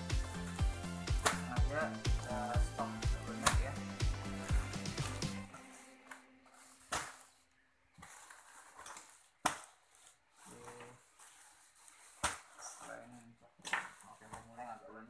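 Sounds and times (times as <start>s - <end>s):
background music: 0.0s - 7.3s.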